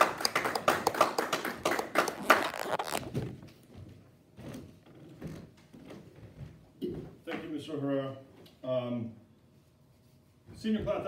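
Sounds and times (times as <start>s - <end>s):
people clapping: 0.0s - 3.0s.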